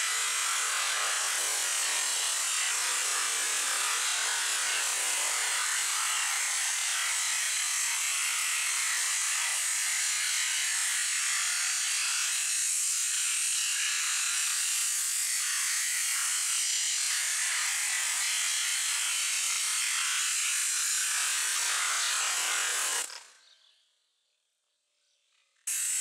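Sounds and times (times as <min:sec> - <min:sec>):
pressure washer jet hissing: 0:25.7 - 0:26.0.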